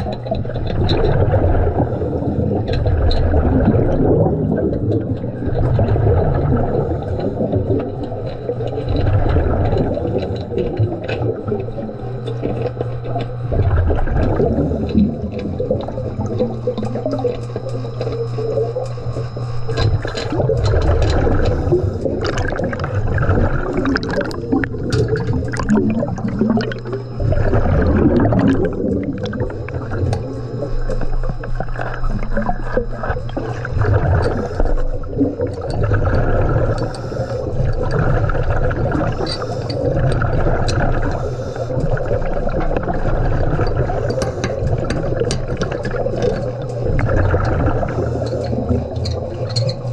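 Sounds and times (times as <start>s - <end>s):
gurgling exhaust bubbles: 0.0s - 49.9s
diver breathing underwater: 1.4s - 4.7s, 19.3s - 49.9s
sharp clicks and knocks: 43.6s - 47.6s.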